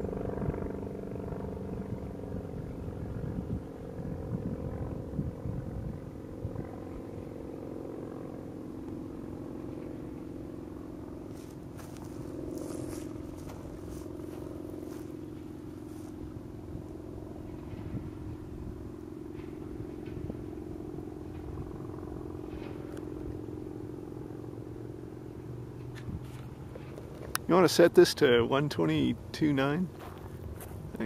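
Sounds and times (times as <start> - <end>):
propeller airplane engine droning: 0.0 - 31.0.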